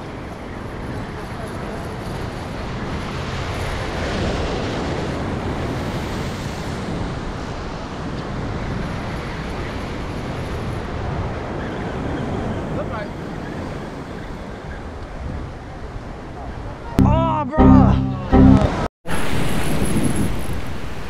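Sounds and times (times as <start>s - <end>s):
wind rushing on microphone: 0.0s - 17.0s, 19.1s - 21.0s
surf washing against jetty: 2.1s - 14.6s.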